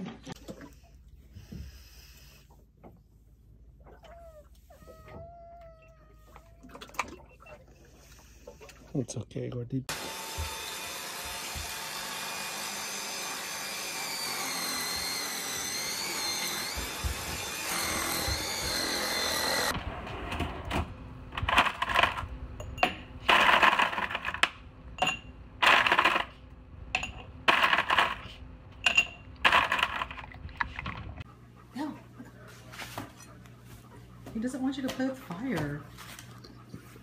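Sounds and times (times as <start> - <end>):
vacuum cleaner running: 9.9 - 22.2.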